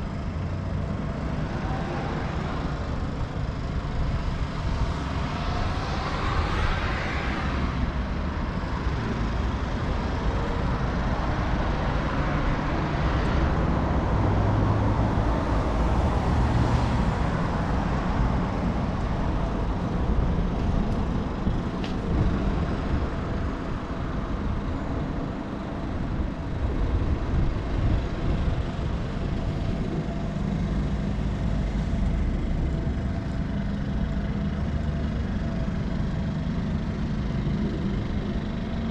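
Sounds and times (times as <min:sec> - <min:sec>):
road traffic rumble: 0:00.0 - 0:38.9.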